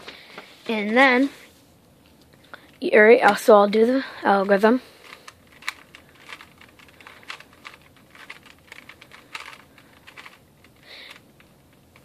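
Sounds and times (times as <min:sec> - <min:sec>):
puzzle cube clicking as twisted: 0:05.0 - 0:12.0.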